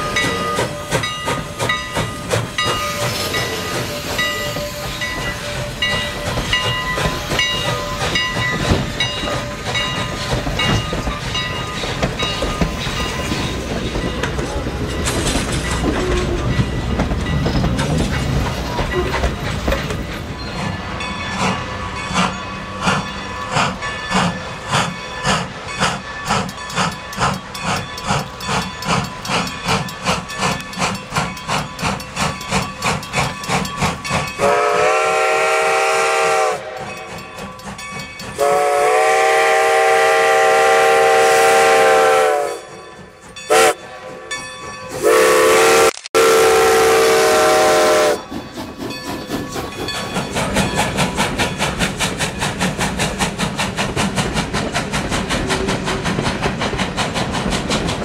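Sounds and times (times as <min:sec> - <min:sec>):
steam locomotive chuffing: 0:00.0 - 0:58.0
steam whistle blasts: 0:34.4 - 0:36.9, 0:38.4 - 0:42.7, 0:43.5 - 0:43.8, 0:45.0 - 0:48.2.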